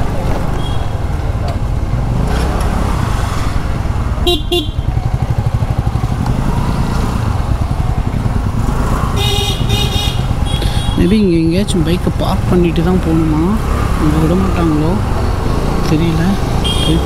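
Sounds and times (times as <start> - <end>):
scooter engine and wind rumble: 0.0 - 17.0
vehicle horn: 4.2 - 5.0, 9.2 - 11.0, 16.6 - 17.0.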